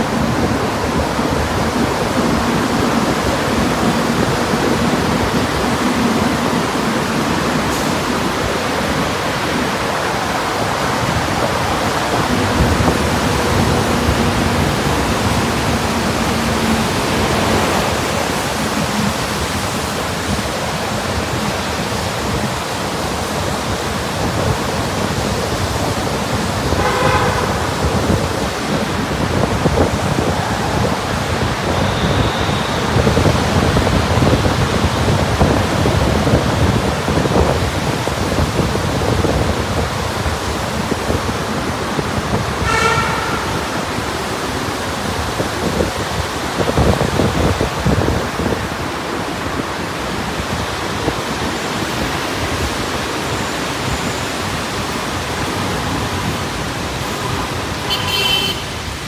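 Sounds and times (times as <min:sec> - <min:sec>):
traffic echoing in tunnel: 0:00.0 - 0:59.0
vehicle horn honk: 0:26.7 - 0:28.0, 0:31.7 - 0:33.1, 0:42.6 - 0:43.9, 0:57.8 - 0:58.8.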